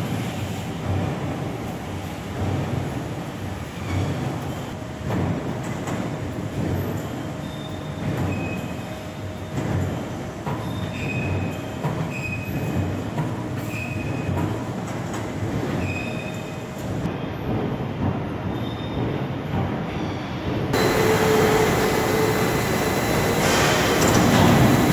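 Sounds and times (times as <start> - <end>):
high metallic squeals: 20.8 - 24.9
machinery low rumble: 20.8 - 24.9.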